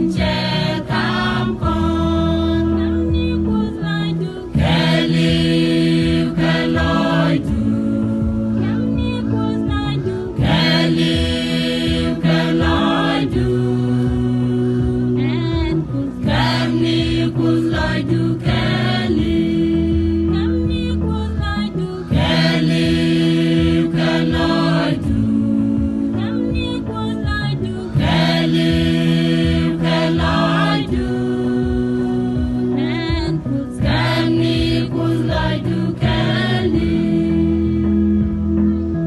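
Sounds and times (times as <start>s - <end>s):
choir singing: 0.0s - 3.0s, 3.9s - 8.8s, 10.4s - 15.2s, 16.2s - 20.3s, 21.9s - 26.4s, 27.7s - 33.0s, 33.8s - 37.8s.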